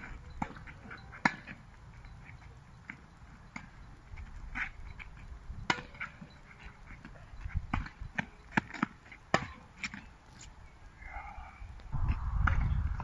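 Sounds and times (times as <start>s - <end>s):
tennis racket striking ball: 5.6s - 10.0s.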